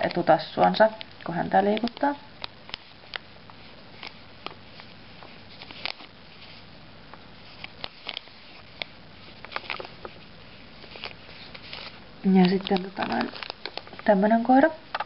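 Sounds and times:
plastic bag crinkling: 1.2s - 6.7s, 7.4s - 14.3s.

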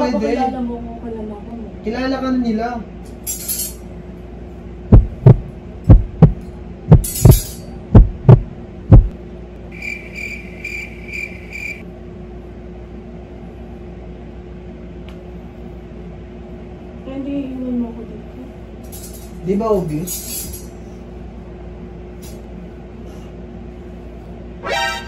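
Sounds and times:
steady low hum: 0.0s - 25.0s
heartbeat thumps: 4.9s - 9.1s.

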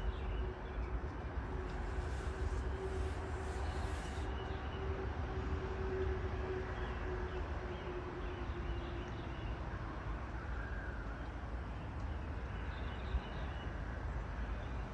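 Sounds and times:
faint hum: 0.0s - 8.5s
outdoor rumble and hiss: 0.0s - 14.9s.

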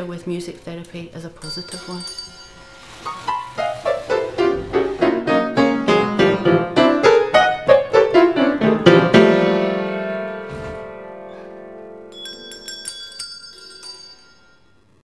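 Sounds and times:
held piano chord: 2.8s - 12.7s.

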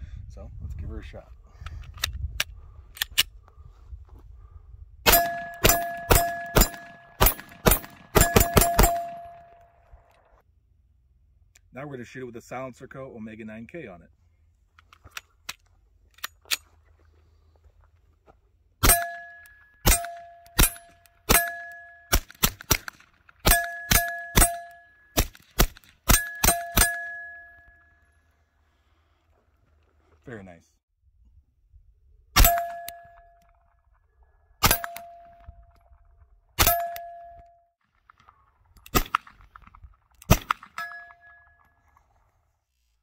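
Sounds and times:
pistol shots: 5.1s - 9.6s, 40.3s - 40.8s
steady ringing tone: 18.9s - 22.1s, 23.5s - 25.2s, 26.1s - 28.2s, 40.8s - 41.9s.

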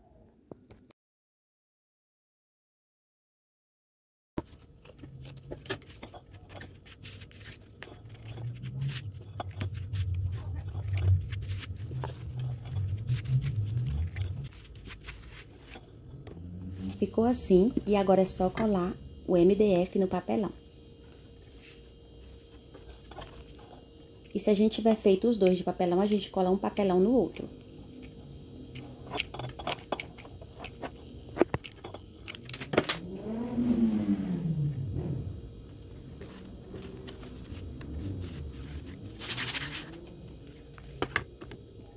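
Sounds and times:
low droning tone: 4.8s - 41.9s
low rumble: 8.1s - 14.7s.

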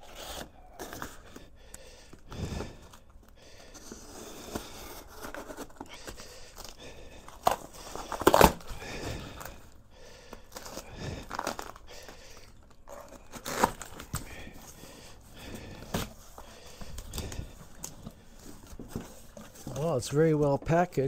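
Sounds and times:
packing tape ripping: 0.0s - 1.5s, 3.8s - 9.6s, 10.4s - 14.6s.

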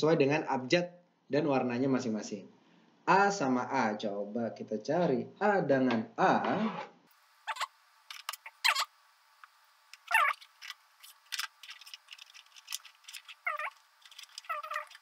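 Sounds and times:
short squeaks: 10.1s - 10.5s, 13.2s - 15.0s.

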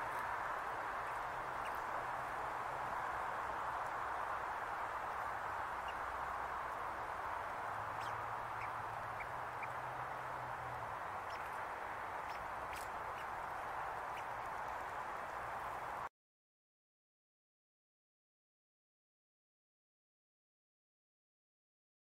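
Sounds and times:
steady outdoor hiss: 0.0s - 16.1s.

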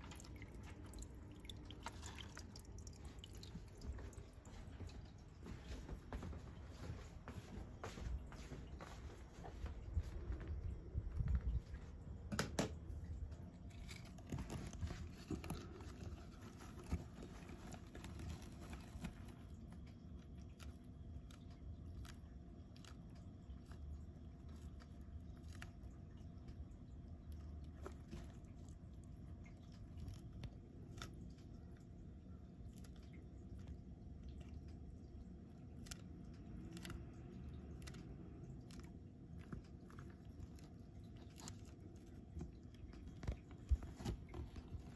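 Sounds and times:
tortoise chewing leaf crunches: 0.0s - 5.6s, 9.3s - 44.9s.

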